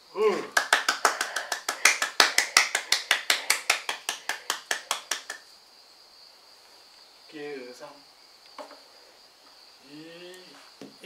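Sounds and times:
person clapping hands: 0.4s - 5.4s.

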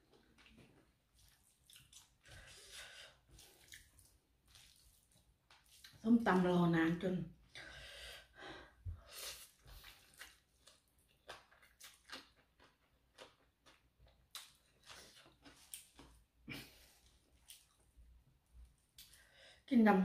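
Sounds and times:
person slurping and chewing: 0.3s - 6.0s, 9.1s - 16.2s.

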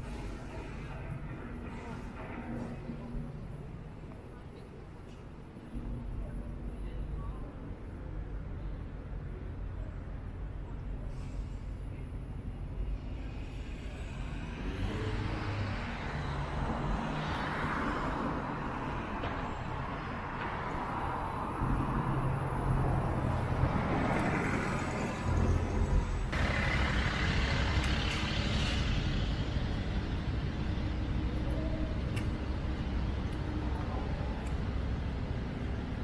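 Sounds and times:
low engine rumble: 0.0s - 36.0s
vehicles driving past: 11.0s - 36.0s.

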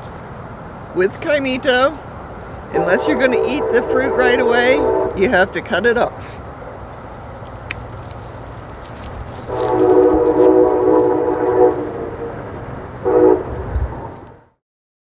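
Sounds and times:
horn blasts: 2.7s - 5.9s, 9.4s - 14.5s.

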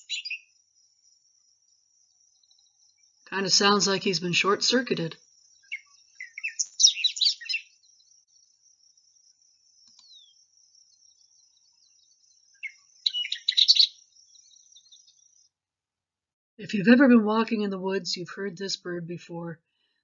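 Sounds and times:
bird warbling song: 0.0s - 15.6s.

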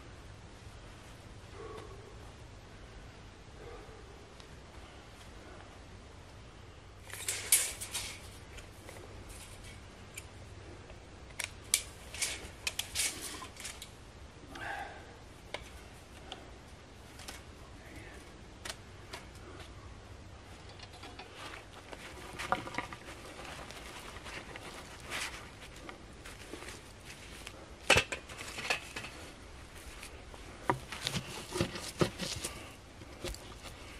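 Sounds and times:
soil crunching and scraping: 20.5s - 33.9s.

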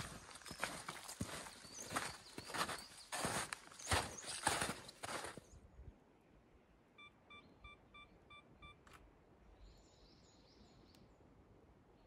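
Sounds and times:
bird chirping: 0.0s - 5.7s.

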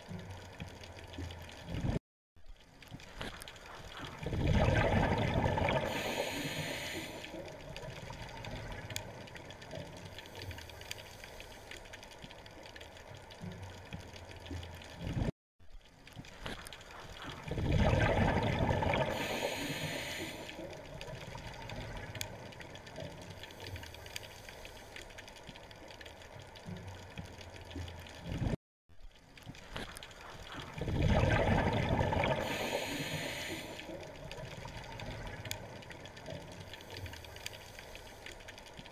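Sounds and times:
diver exhaling bubbles underwater: 4.1s - 7.3s, 17.4s - 20.6s, 30.6s - 35.4s.

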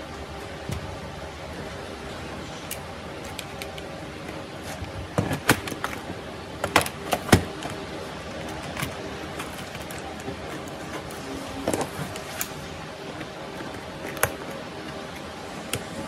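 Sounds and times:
plastic parts clicking and knocking: 2.7s - 12.5s.

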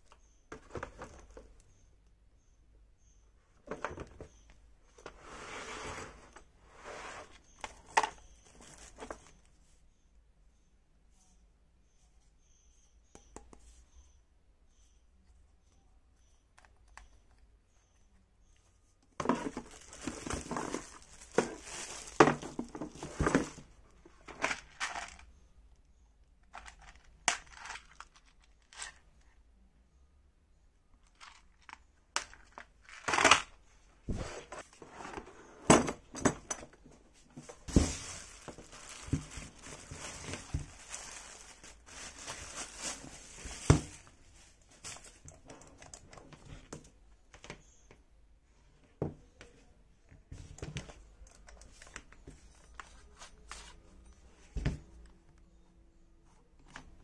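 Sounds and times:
plastic bag crinkling: 19.2s - 23.6s, 37.4s - 46.0s.

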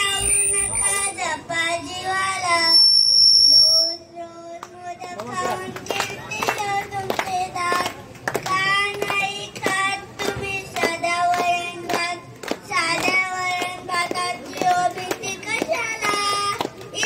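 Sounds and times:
boy singing into a microphone: 0.0s - 17.0s
hand claps: 4.6s - 17.0s.

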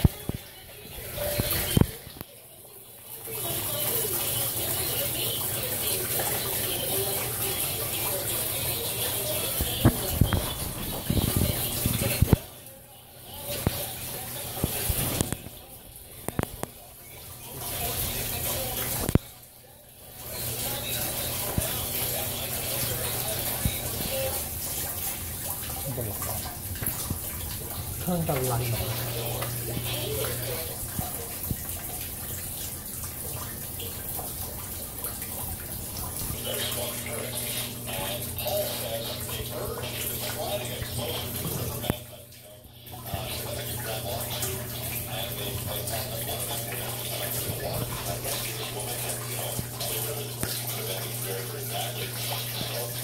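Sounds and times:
dripping clicks: 0.0s - 2.4s, 3.4s - 19.4s, 20.2s - 53.0s
water rushing and splashing: 3.3s - 12.6s, 20.1s - 53.0s.

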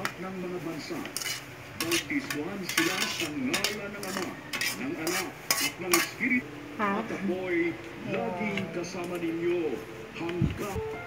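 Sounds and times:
metal spoon scraping and clinking: 1.0s - 6.3s.

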